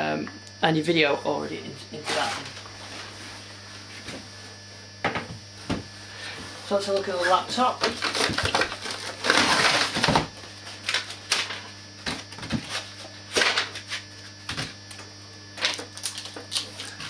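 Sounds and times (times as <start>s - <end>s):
plastic packaging rustling: 7.2s - 11.6s.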